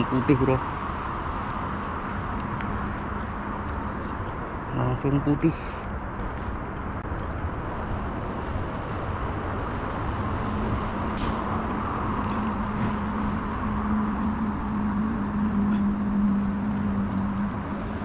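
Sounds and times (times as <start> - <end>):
engine hum: 0.0 - 18.0
outdoor noise: 0.0 - 18.0.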